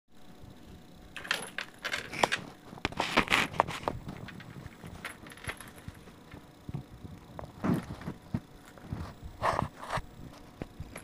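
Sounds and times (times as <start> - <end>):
metal hardware clinking and rattling: 1.2 - 2.4, 4.2 - 6.4.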